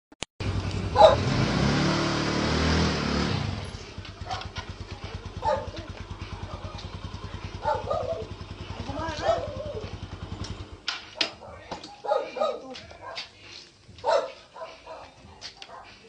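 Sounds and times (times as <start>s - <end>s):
small motorcycle engine revving: 0.4s - 10.9s.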